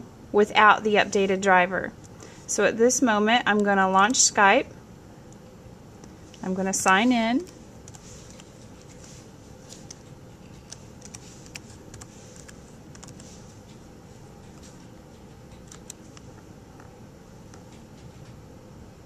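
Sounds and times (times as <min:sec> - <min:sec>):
steady low hum: 0:00.0 - 0:19.0
laptop keyboard typing: 0:06.8 - 0:09.1, 0:09.7 - 0:18.4.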